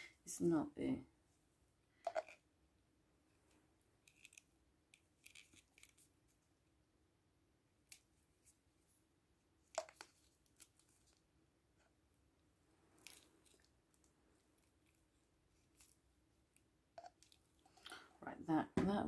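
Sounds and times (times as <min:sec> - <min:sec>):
crinkling of gloved hands: 0:12.8 - 0:18.1.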